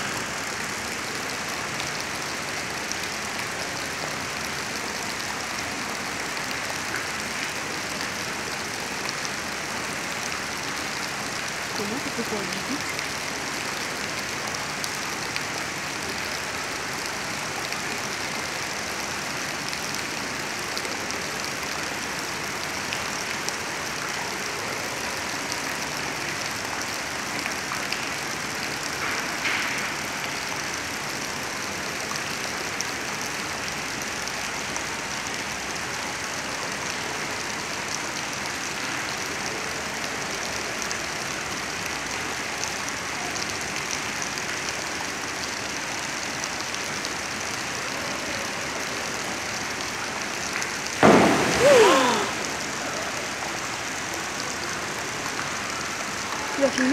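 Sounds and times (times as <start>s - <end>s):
water splashing into pool: 50.9s - 53.6s.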